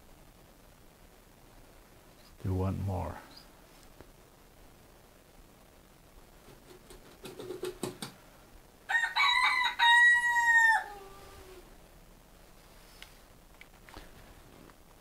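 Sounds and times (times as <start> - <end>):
rooster crowing through speakers: 8.9 - 11.6.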